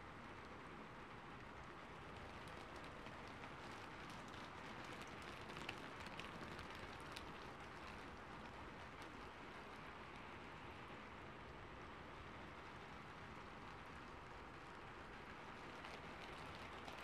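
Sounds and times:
raindrops ticking: 1.4s - 10.3s, 13.3s - 17.0s
light rain hissing: 1.5s - 17.0s.

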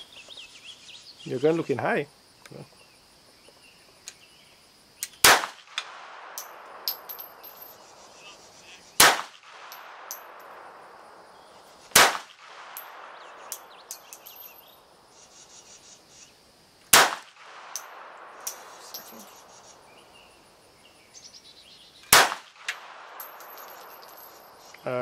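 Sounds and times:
pistol shots with echo: 5.2s - 7.6s, 9.0s - 10.8s, 11.9s - 14.4s, 16.9s - 19.4s, 22.1s - 24.0s.

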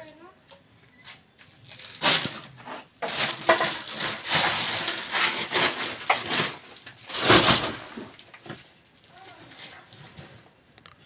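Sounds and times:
planks and tin sheets clattering: 2.0s - 8.6s.

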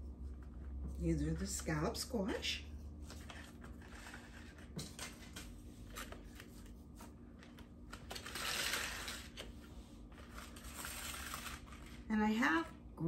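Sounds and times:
scratchy rustle: 10.2s - 12.1s.

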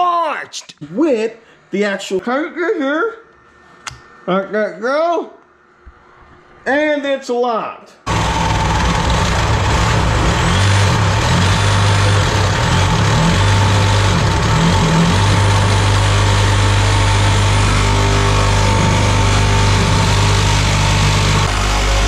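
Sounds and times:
reciprocating saw cutting metal: 8.1s - 22.0s.

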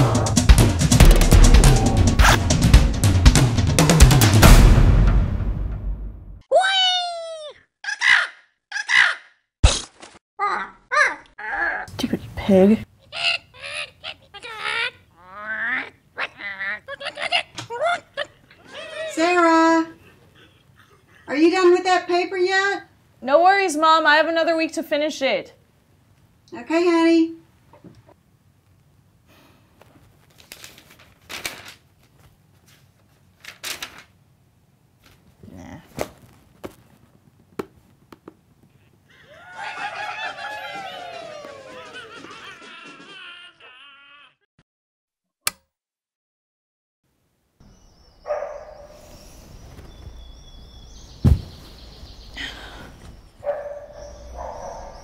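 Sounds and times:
paper rustling: 29.8s - 34.2s, 35.9s - 38.1s
birds chirping: 47.6s - 55.0s
loud sharp thump: 51.2s - 51.6s.

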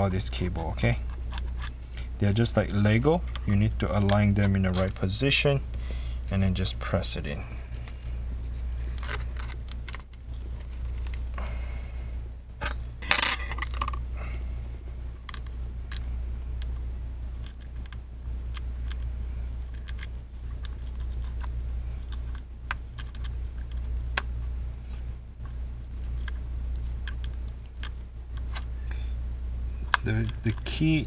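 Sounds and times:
steady low hum: 0.0s - 31.0s
small clicks taps and scrapes: 2.6s - 5.0s, 17.4s - 24.3s.

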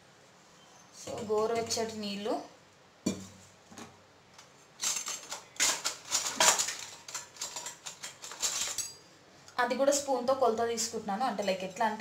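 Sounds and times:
metal vessels and spoon clattering: 4.8s - 9.1s.

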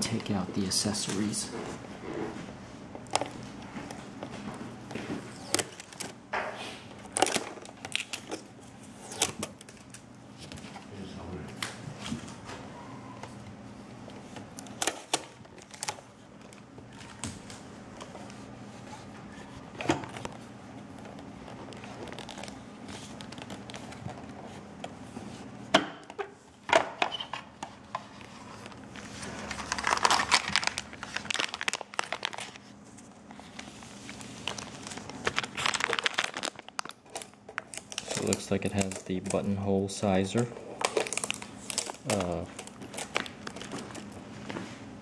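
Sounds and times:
plastic bag crinkling: 14.6s - 17.6s, 20.0s - 24.5s, 28.1s - 44.3s.

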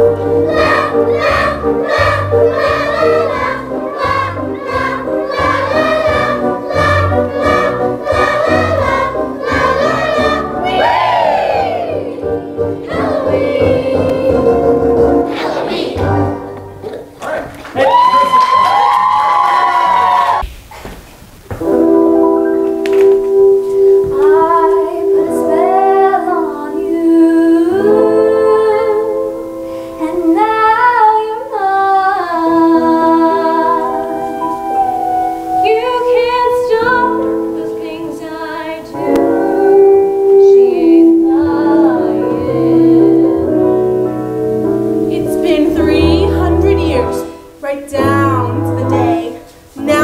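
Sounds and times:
choir singing: 0.0s - 16.6s
instrumental backing: 0.0s - 17.2s, 21.4s - 31.3s, 32.0s - 50.0s.

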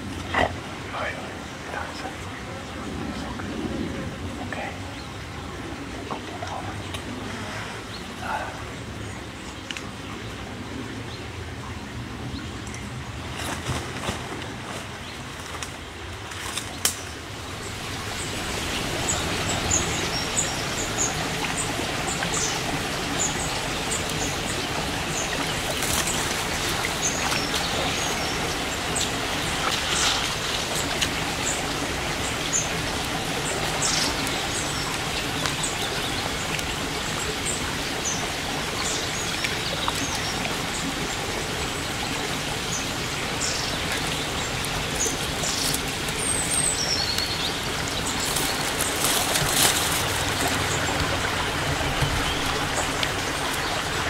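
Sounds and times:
stream flowing over stones: 0.0s - 54.0s.

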